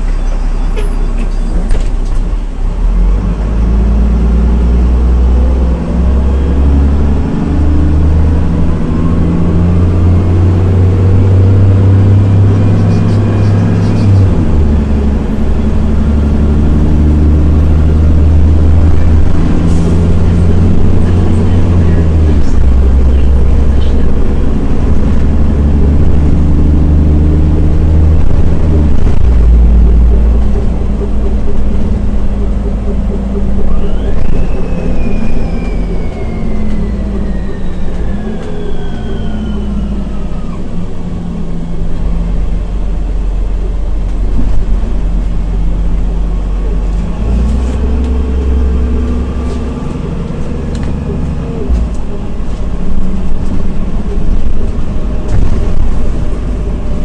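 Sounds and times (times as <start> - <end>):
bus engine rumbling: 0.0 - 57.0
high whine gliding down: 17.0 - 43.0.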